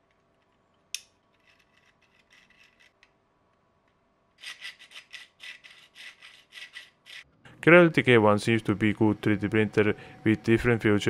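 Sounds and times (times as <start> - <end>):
plastic parts rasping: 4.4 - 7.2.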